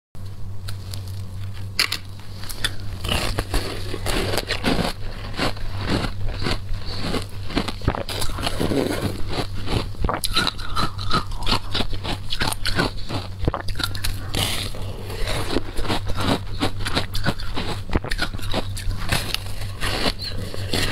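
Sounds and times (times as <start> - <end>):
crunching shaved ice: 0.9 - 20.9.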